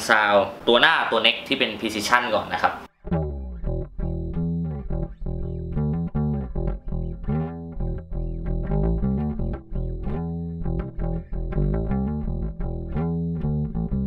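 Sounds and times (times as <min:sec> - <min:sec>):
plucked bass guitar notes: 0:02.9 - 0:14.0.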